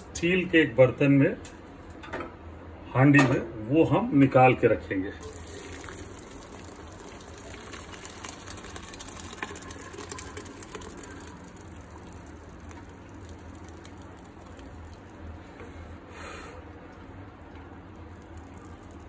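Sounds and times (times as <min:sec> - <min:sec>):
water draining through a colander: 0:05.2 - 0:15.4, 0:16.5 - 0:19.0.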